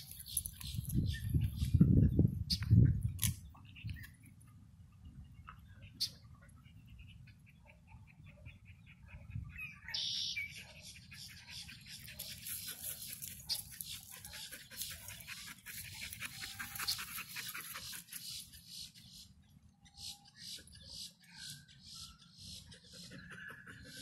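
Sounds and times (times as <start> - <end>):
high animal pips: 11.1 - 18.9.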